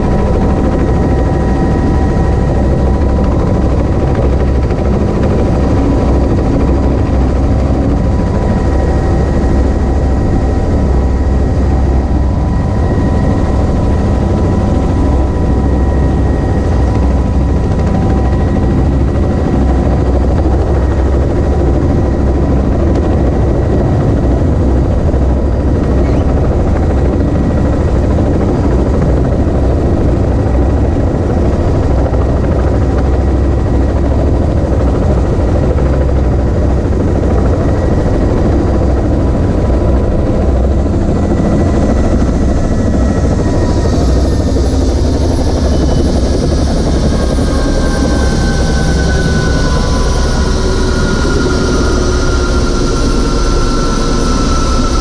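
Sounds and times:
helicopter rotor and engine rumble: 0.0s - 55.0s
wind noise: 0.0s - 55.0s
thin whine falling in pitch: 45.2s - 55.0s.

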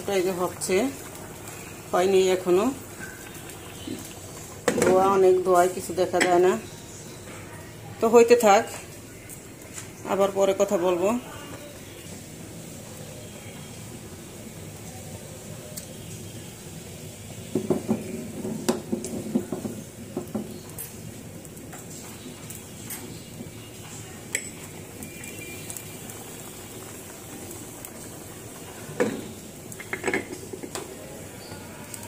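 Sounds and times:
gas burner hiss: 0.0s - 32.0s
water boiling: 0.0s - 32.0s
metal cookware clattering: 29.0s - 30.8s.

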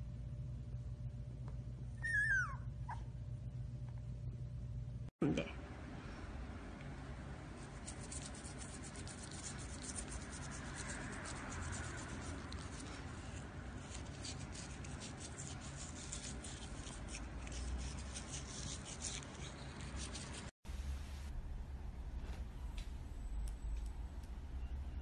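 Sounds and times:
toothbrush scrubbing teeth: 7.6s - 20.5s.

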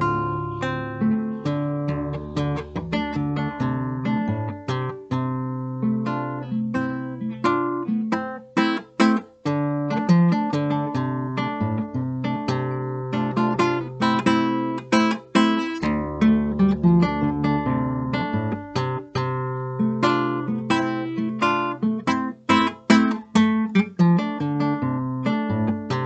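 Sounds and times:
fingerstyle classical guitar: 0.0s - 26.0s.

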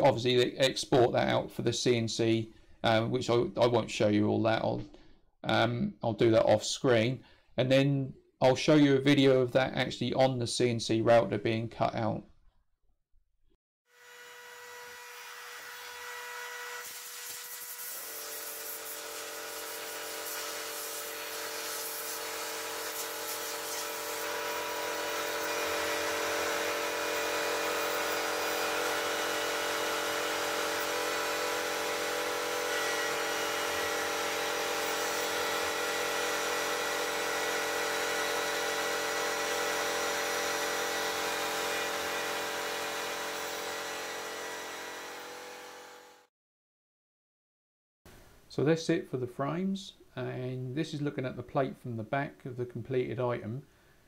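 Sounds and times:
router spindle milling aluminium: 18.5s - 46.2s.

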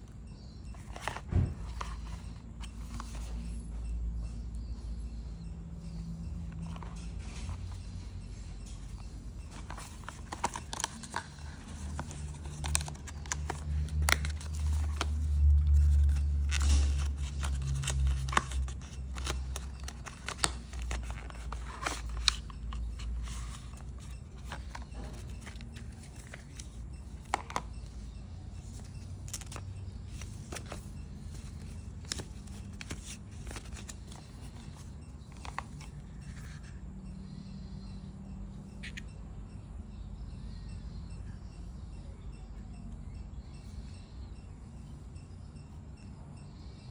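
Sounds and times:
paper rustling: 0.8s - 3.5s, 9.5s - 28.0s, 28.6s - 36.7s
plastic clicks and scrapes: 9.5s - 28.0s
cardboard box being opened: 9.6s - 15.2s.

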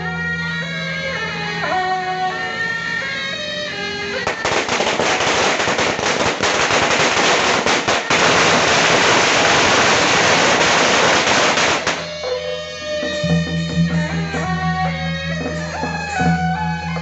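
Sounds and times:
music with held notes: 0.0s - 6.4s, 11.5s - 17.0s
firecrackers cracking: 4.2s - 12.2s.

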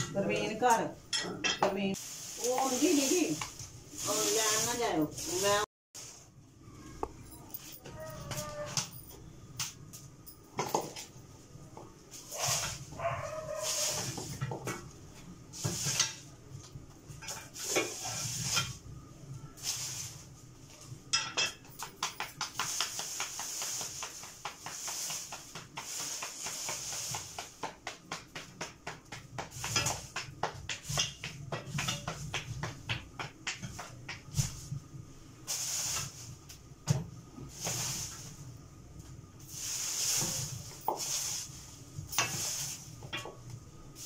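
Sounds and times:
cooking hiss: 1.8s - 6.4s, 11.7s - 44.0s
dog barking: 12.4s - 13.9s
utensil knocking in a pot: 21.1s - 34.4s.

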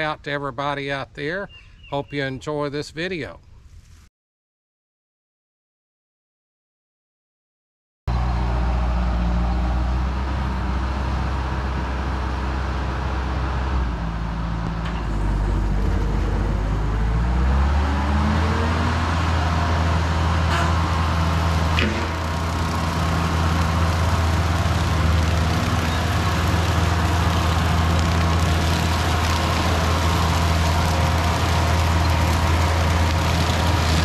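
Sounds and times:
diesel engine running under load: 8.1s - 34.0s
brush cutter through grass: 21.5s - 34.0s.

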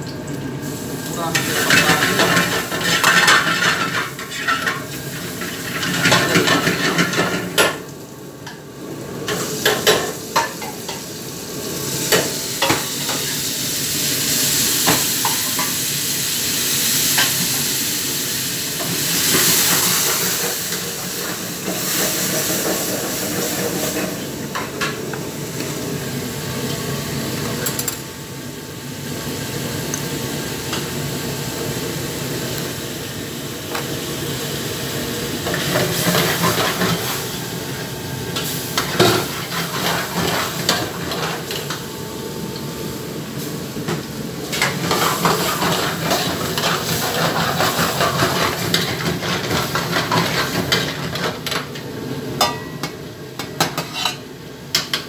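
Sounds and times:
food sizzling in a wok: 0.0s - 55.0s.

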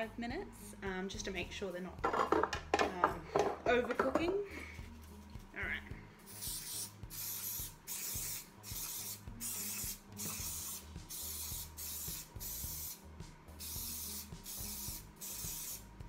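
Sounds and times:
cooking spray hissing in bursts: 6.3s - 15.9s.

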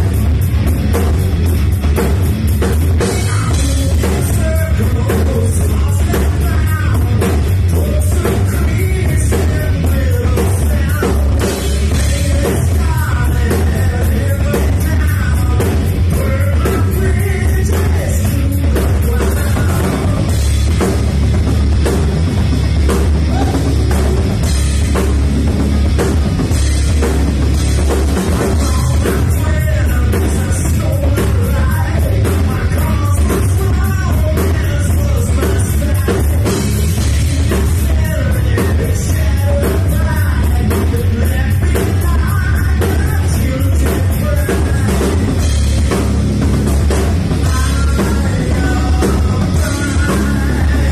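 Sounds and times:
rock band playing live: 0.0s - 50.9s
person singing: 47.4s - 50.9s.

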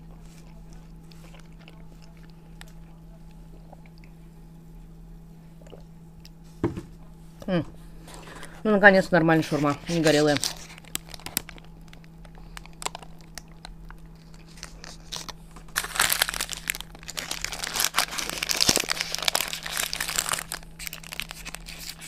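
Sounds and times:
paper wrapper crinkling: 9.4s - 22.0s.

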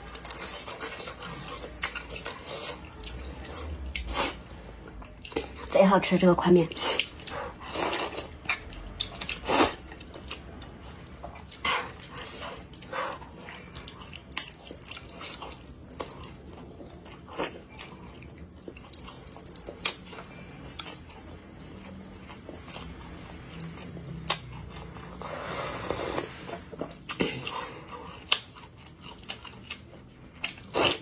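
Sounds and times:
slurping and chewing noodles: 0.0s - 5.7s, 6.6s - 31.0s.

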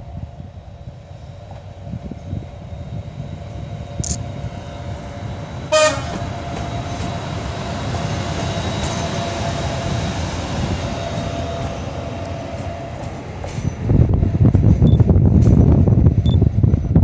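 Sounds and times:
locomotive wheels rumbling on rails: 0.0s - 17.0s
locomotive whine: 0.0s - 17.0s
locomotive horn toot: 5.7s - 6.3s.

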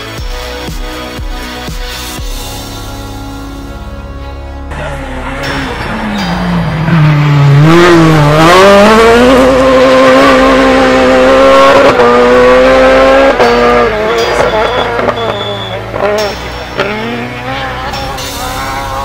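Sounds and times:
rally car engine revving: 4.6s - 19.0s.

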